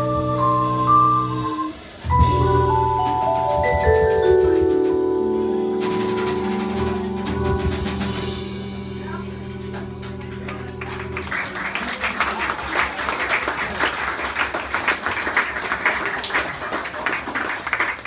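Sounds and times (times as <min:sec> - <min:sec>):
vibraphone notes ringing: 0:00.0 - 0:10.8
audience applause: 0:09.7 - 0:18.0.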